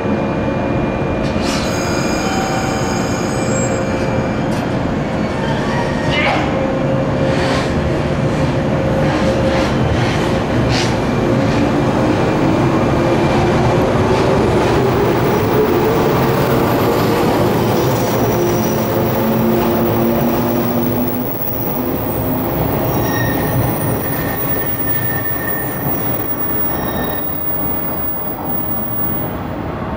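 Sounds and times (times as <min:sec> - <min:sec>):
wheels rumbling on rail: 0:00.0 - 0:29.9
electric train motors whining: 0:14.8 - 0:29.4.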